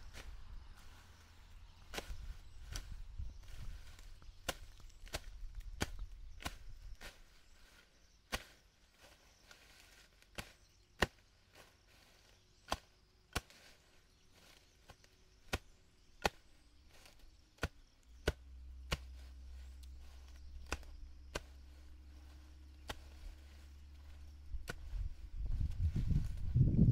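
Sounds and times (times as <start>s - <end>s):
low rumble: 18.4s - 26.9s
hand tool chopping strikes: 20.6s - 21.8s.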